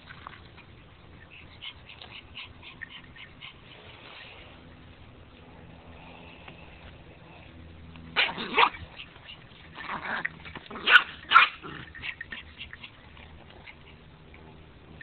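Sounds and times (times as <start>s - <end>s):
small dog barking: 8.2s - 9.2s, 10.7s - 12.1s.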